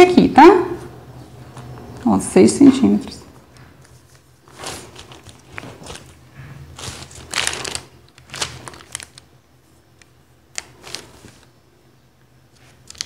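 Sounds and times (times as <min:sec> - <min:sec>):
paper rustling: 0:03.5 - 0:11.6, 0:12.5 - 0:13.0.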